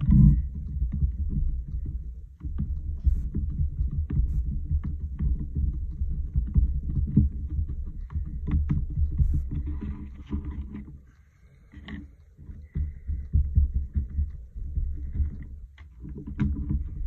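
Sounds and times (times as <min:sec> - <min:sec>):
fingers rubbing on stencil: 0:00.0 - 0:11.1, 0:11.8 - 0:17.0.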